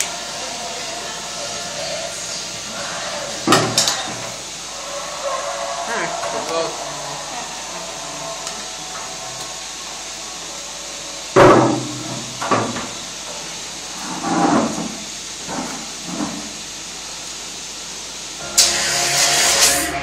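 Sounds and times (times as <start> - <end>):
milking machinery hissing: 0.0 - 20.0.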